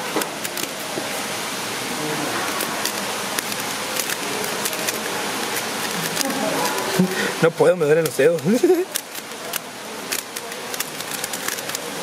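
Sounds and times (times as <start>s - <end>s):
puzzle cube clicking: 8.0s - 11.9s.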